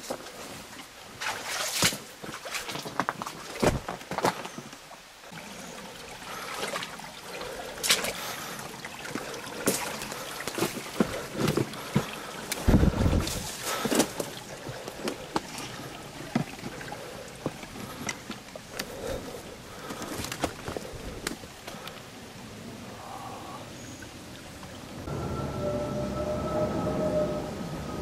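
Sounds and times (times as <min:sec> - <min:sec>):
stream trickling over rocks: 0:00.0 - 0:25.1.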